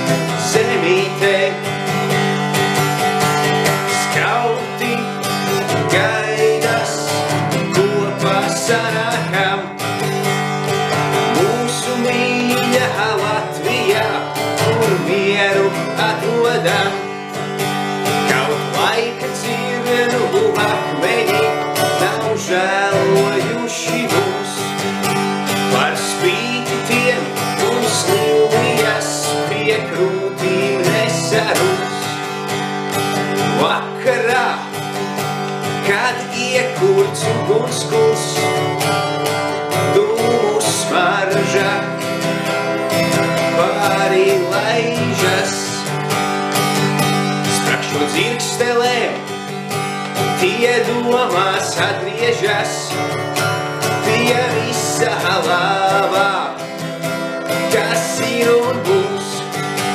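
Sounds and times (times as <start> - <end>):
acoustic guitar strumming: 0.0 - 59.9
man singing: 0.0 - 59.9.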